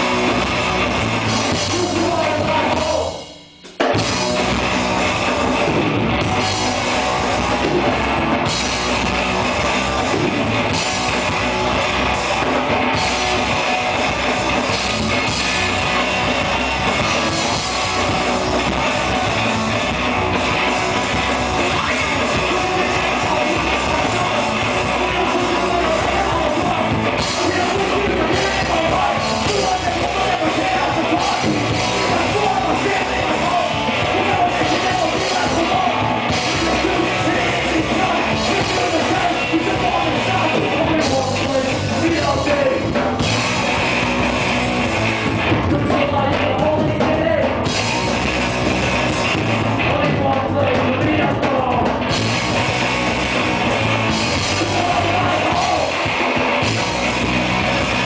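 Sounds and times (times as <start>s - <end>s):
drum kit: 0.0s - 58.0s
electric guitar: 0.0s - 58.0s
singer shouting into microphone: 1.4s - 3.3s, 21.6s - 43.0s, 54.4s - 56.1s.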